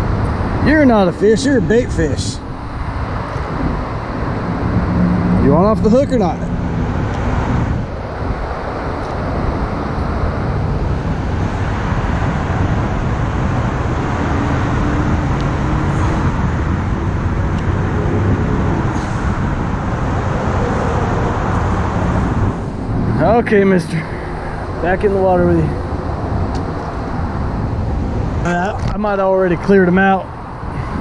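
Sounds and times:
road traffic hum: 0.0s - 31.0s
faint engine tone: 1.0s - 8.5s.

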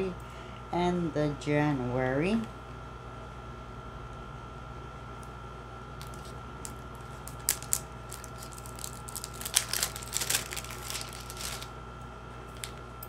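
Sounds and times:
packaging clicks: 6.0s - 11.7s
packaging crinkling and rustling: 6.0s - 11.7s, 12.5s - 12.9s.

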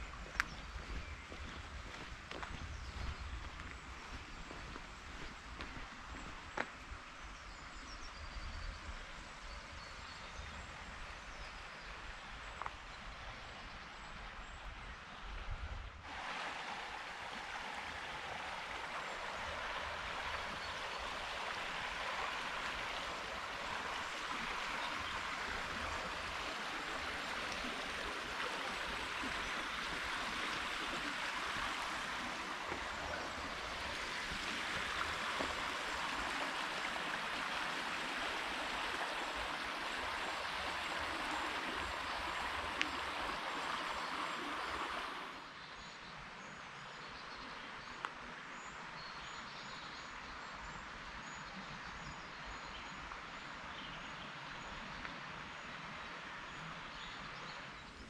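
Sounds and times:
river water roaring over weir: 16.0s - 45.5s.

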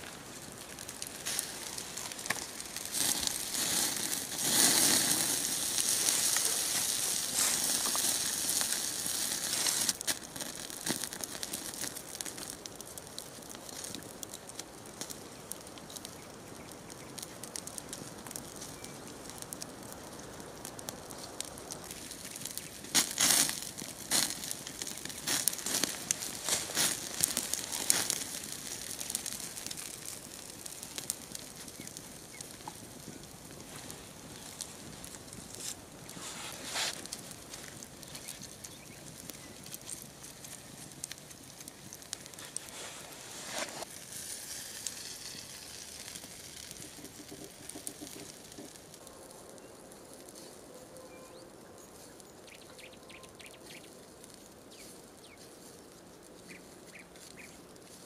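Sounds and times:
rustling noise: 0.0s - 11.7s, 21.2s - 29.8s, 32.6s - 48.8s
wood fire crackling: 0.0s - 58.0s.

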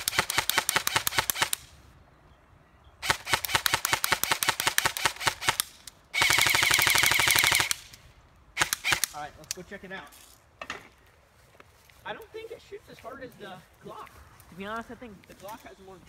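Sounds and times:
airsoft rifle rapid shots: 0.0s - 1.7s, 3.0s - 8.0s, 8.6s - 9.2s.

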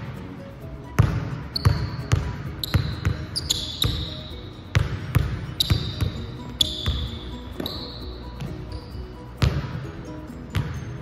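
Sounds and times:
basketball bouncing on hardwood: 1.0s - 8.6s, 9.4s - 9.8s, 10.5s - 10.8s
sneakers squeaking on floor: 1.0s - 11.0s.

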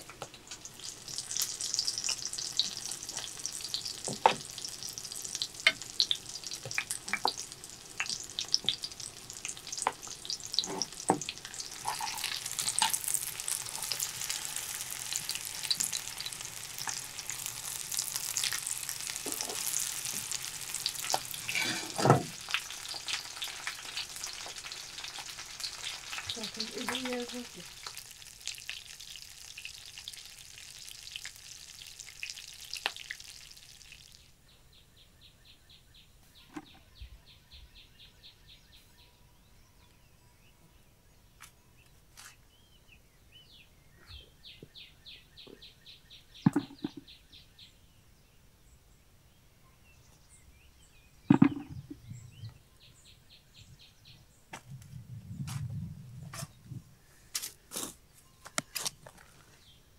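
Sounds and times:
fish frying in hot oil: 0.0s - 34.3s.

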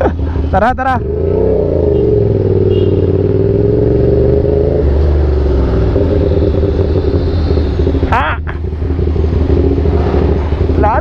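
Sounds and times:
motorcycle engine running: 0.8s - 11.0s.

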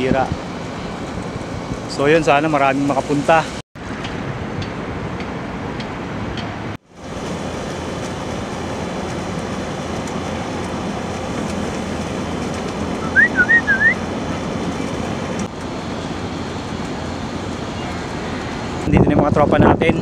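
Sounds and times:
outdoor background noise: 0.0s - 20.0s
whistled chirps: 13.0s - 14.0s.

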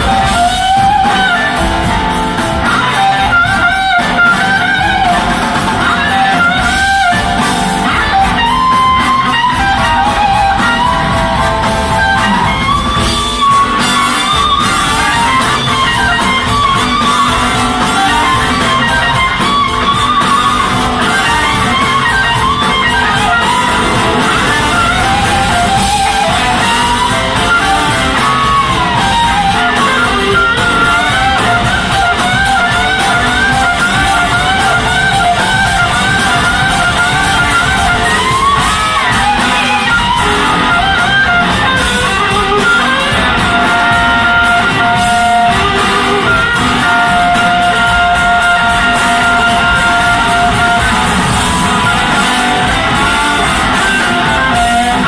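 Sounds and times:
blues-rock band playing loudly: 0.0s - 55.0s
lead electric guitar bending: 0.0s - 55.0s.

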